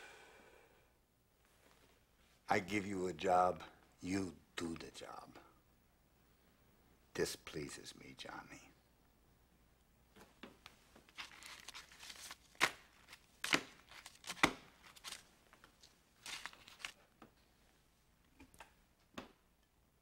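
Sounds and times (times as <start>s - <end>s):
paper rustling: 11.0s - 17.1s.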